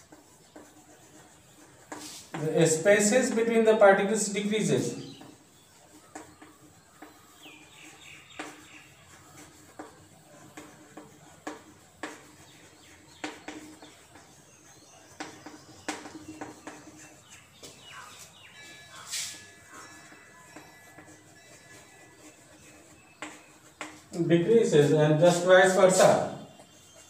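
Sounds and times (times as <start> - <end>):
chalk tapping and scraping on chalkboard: 0.0 - 27.0.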